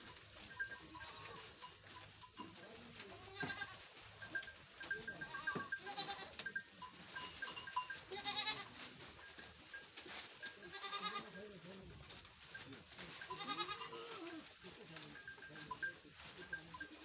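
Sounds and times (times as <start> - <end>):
goats bleating: 0.6 - 1.7, 2.8 - 4.0, 4.9 - 6.6, 7.3 - 8.9, 10.5 - 11.4, 13.1 - 15.8.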